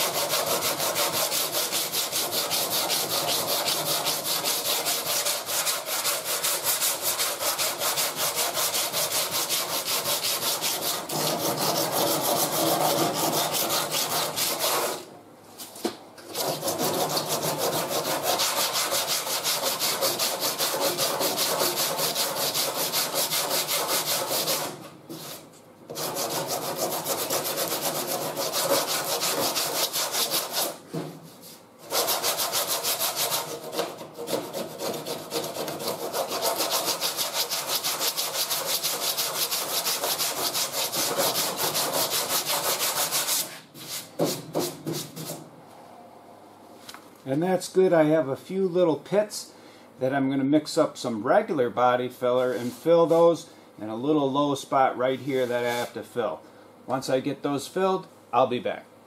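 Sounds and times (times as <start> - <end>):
hand sanding body filler: 0.0 - 15.1, 16.3 - 30.8, 31.4 - 45.5, 55.0 - 56.0.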